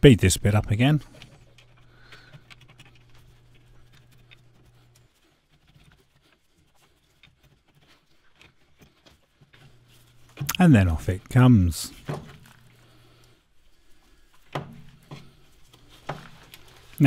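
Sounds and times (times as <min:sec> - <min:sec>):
faint scratching of brake caliper: 0:01.0 - 0:10.3.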